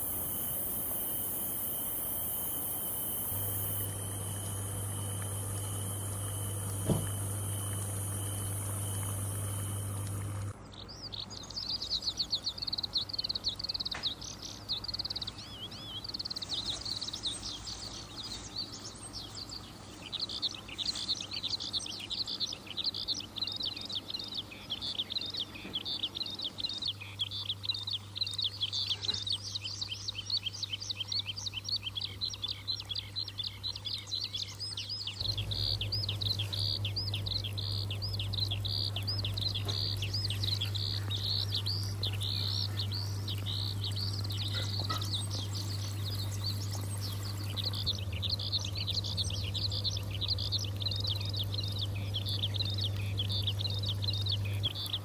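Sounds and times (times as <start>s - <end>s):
steady low hum: 0.0s - 10.8s, 35.2s - 55.0s
birds chirping: 0.0s - 55.0s.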